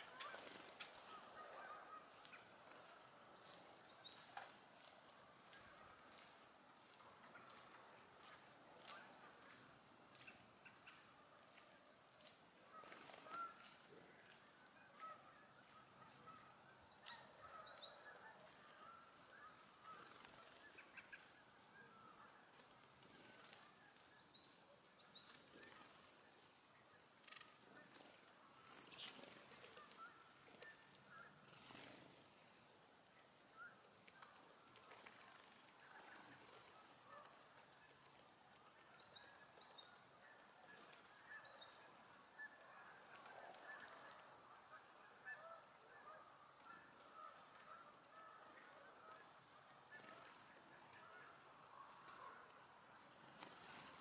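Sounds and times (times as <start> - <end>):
distant flock of birds calling: 0.0 - 3.3
high sharp songbird calls: 27.9 - 32.1.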